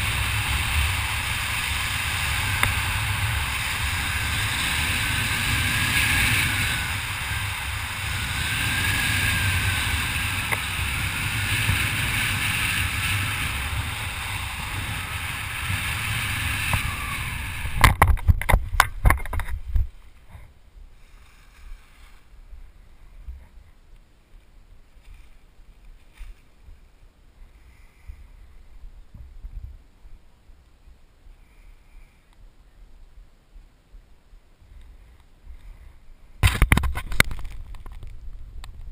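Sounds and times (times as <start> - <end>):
wind rushing over microphone: 0.0 - 20.5.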